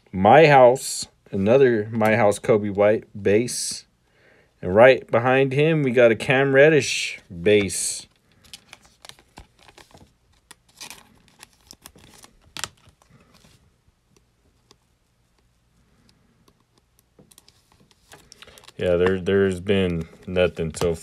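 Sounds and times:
plastic wrapping crinkling: 8.2 - 13.6, 17.2 - 21.0.

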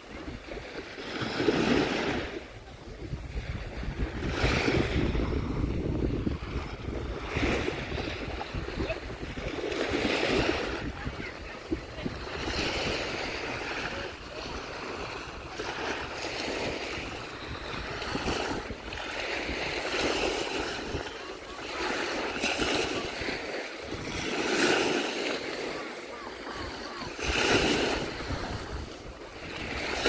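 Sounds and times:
small waves washing on shore: 0.0 - 30.0
wind rumbling on microphone: 0.0 - 30.0.

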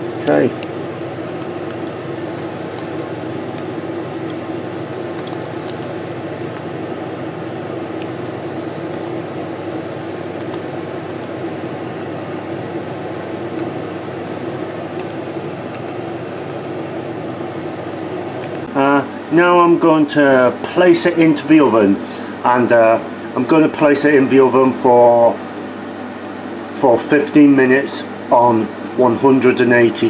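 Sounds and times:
fan whirring hum: 0.0 - 30.0.

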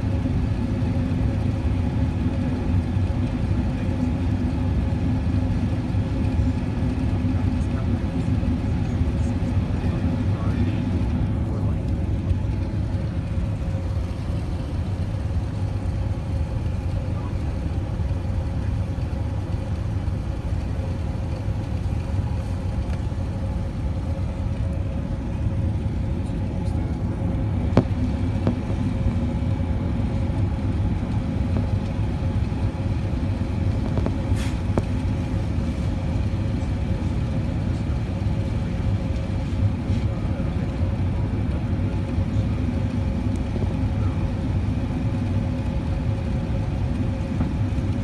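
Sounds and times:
airplane cabin rumble: 0.0 - 48.0
faint steady whine: 0.0 - 48.0.

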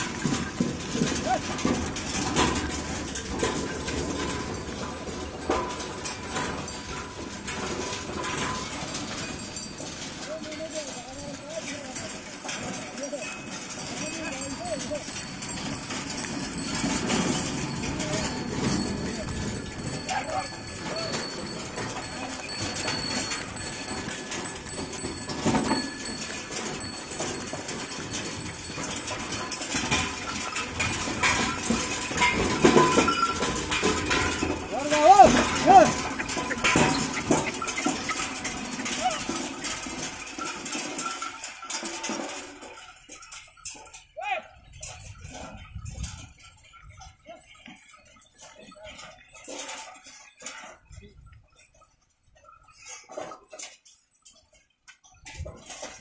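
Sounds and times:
hooves clopping on tarmac: 0.0 - 10.2, 11.9 - 44.0
wooden cart wheels rattling: 0.0 - 56.0.

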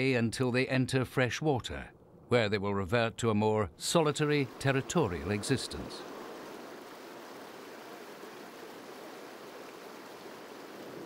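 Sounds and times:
water rushing over rocks: 3.9 - 11.0.

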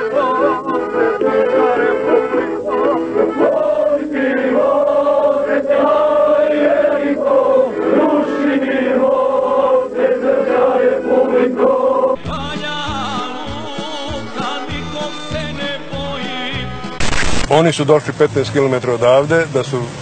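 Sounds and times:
men singing in unison: 0.0 - 17.0
man singing solo: 12.2 - 16.9.

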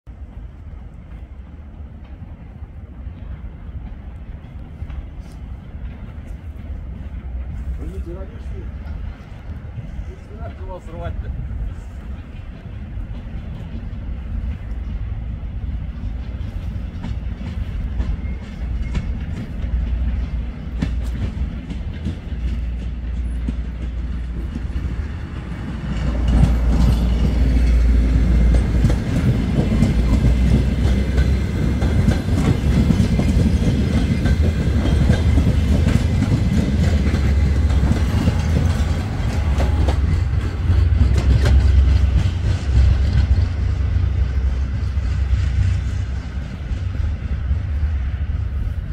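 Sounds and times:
train rumbling past: 0.1 - 48.9
wheels clattering over rail joints: 15.7 - 44.9.

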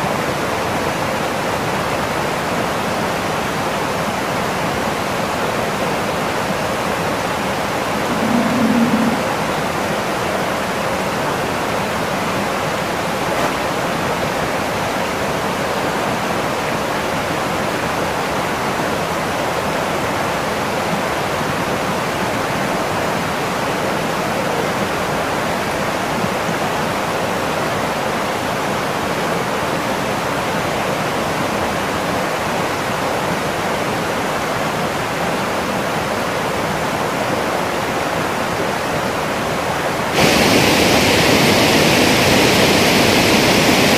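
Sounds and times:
water rushing over weir: 7.7 - 10.4, 36.7 - 43.9.

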